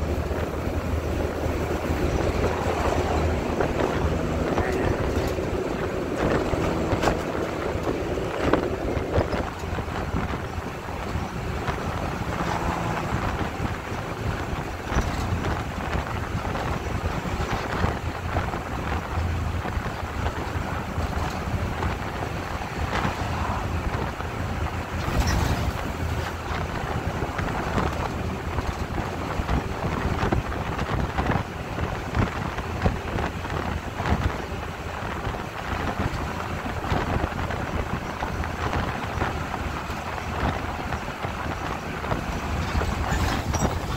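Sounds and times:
bus engine and tyre rumble: 0:00.0 - 0:43.9
wind noise: 0:00.0 - 0:43.9
body knocks and rattles: 0:23.9 - 0:43.9.

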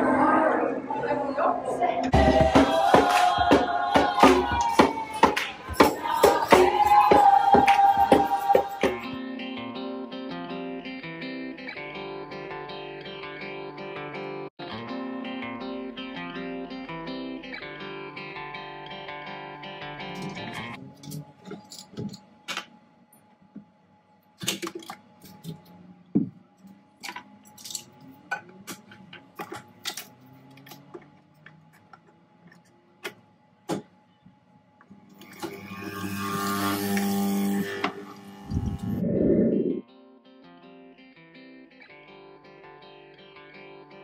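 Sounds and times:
coffee machine buzzing and hissing: 0:35.2 - 0:39.2
loud low whoosh: 0:38.5 - 0:39.8.

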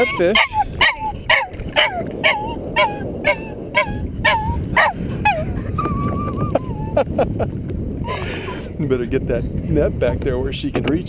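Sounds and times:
dog whining and yelping: 0:00.0 - 0:06.7.

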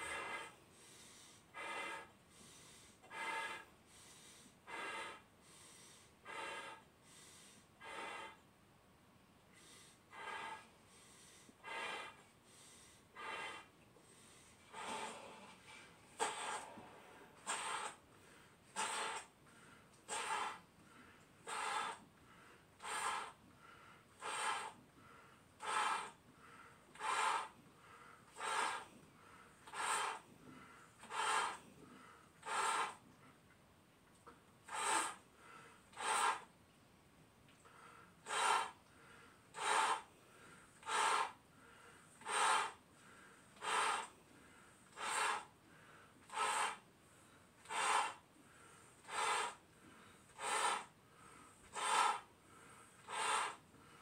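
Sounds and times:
person blowing up balloons: 0:00.0 - 0:00.6, 0:01.4 - 0:03.7, 0:04.4 - 0:06.9, 0:07.8 - 0:08.4, 0:09.6 - 0:10.8, 0:11.5 - 0:12.4, 0:13.1 - 0:13.8, 0:14.5 - 0:22.1, 0:22.8 - 0:23.4, 0:24.1 - 0:24.8, 0:25.6 - 0:26.2, 0:26.9 - 0:27.6, 0:28.3 - 0:29.0, 0:29.6 - 0:33.1, 0:34.6 - 0:35.3, 0:35.9 - 0:36.6, 0:38.2 - 0:38.9, 0:39.5 - 0:40.2, 0:40.8 - 0:41.4, 0:42.2 - 0:42.8, 0:43.6 - 0:44.2, 0:44.9 - 0:45.6, 0:46.2 - 0:46.9, 0:47.6 - 0:48.3, 0:49.0 - 0:49.7, 0:50.3 - 0:51.0, 0:51.6 - 0:52.3, 0:53.0 - 0:53.7.

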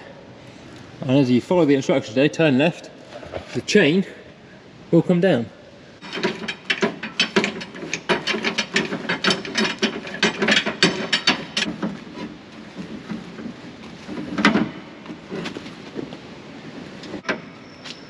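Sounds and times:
winch ratcheting: 0:06.0 - 0:14.7
metal clunk: 0:06.0 - 0:16.1.

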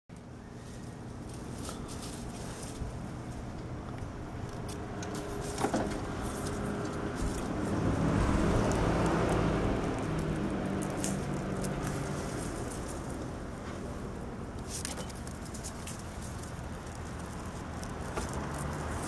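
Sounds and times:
vehicle passing by: 0:04.2 - 0:14.5, 0:16.2 - 0:19.0.

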